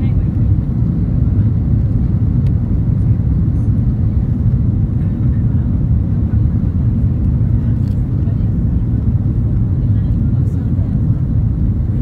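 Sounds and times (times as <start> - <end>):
aircraft cabin engine rumble: 0.0 - 12.0
airflow over wing: 0.0 - 12.0.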